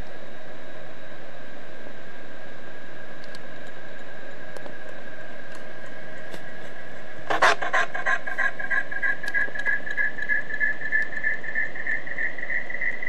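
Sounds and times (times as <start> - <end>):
steady high electronic tone: 7.2 - 13.0
pulsing high tone rising in pitch: 7.3 - 13.0.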